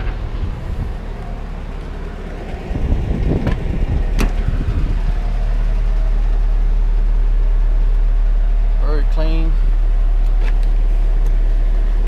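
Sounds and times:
car engine idling: 0.0 - 12.0
car door latch clicks: 3.4 - 4.4.

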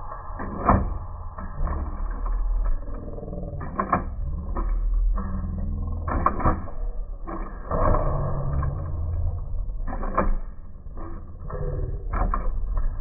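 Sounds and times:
plastic parts clacking: 1.6 - 13.0.

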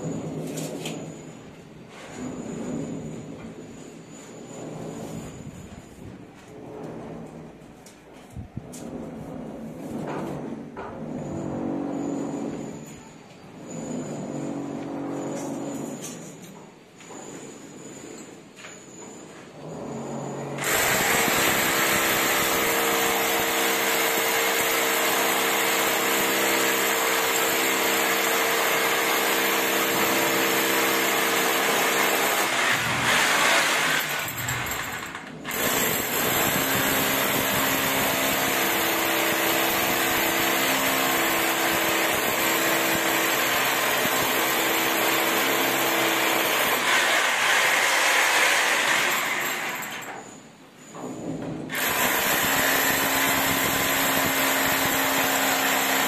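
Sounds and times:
electric drill boring into concrete: 20.6 - 50.3, 51.7 - 56.0.

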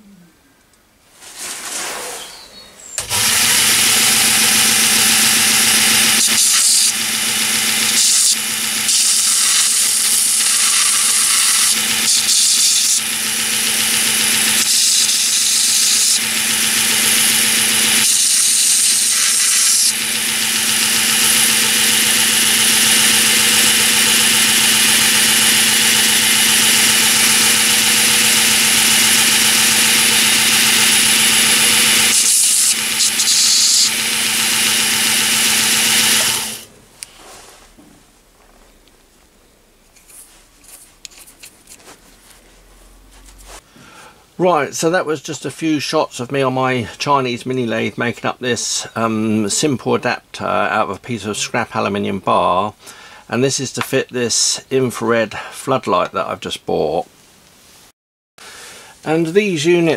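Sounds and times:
belt grinder motor humming: 3.0 - 36.7
metal bolt grinding on belt: 13.9 - 36.7.

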